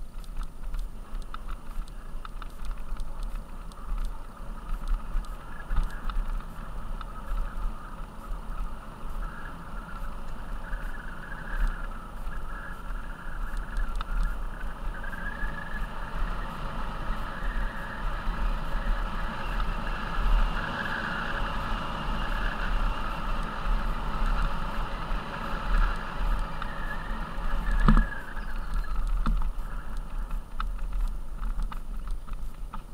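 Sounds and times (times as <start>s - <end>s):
bike tyres rolling over gravel: 0.0s - 32.9s
wind rumbling on microphone: 0.0s - 32.9s.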